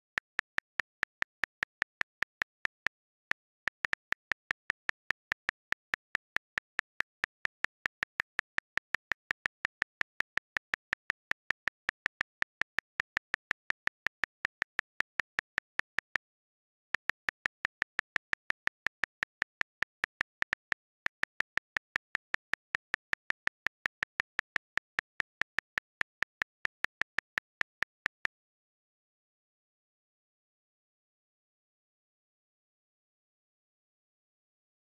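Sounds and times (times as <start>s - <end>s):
calculator key clicks: 0.0s - 16.2s.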